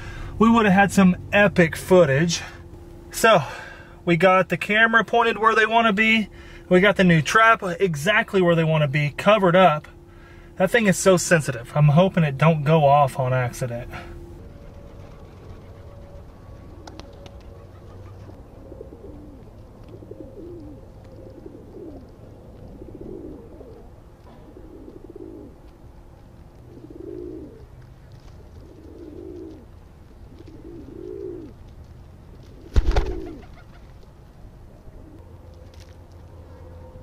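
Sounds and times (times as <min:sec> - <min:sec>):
pigeons cooing: 0:13.9 - 0:34.1, 0:34.7 - 0:35.9
pigeon wings flapping: 0:14.6 - 0:18.3, 0:28.1 - 0:34.0.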